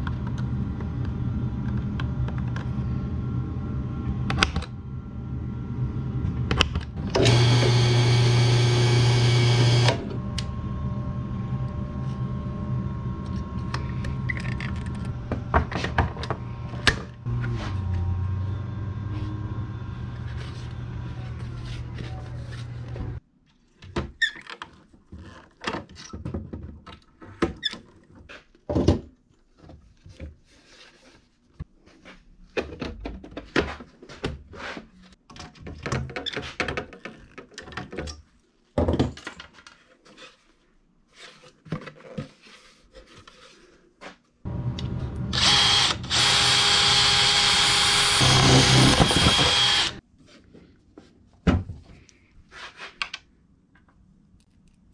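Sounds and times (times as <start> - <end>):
cordless drill whine: 7.0 - 15.3, 44.8 - 50.0.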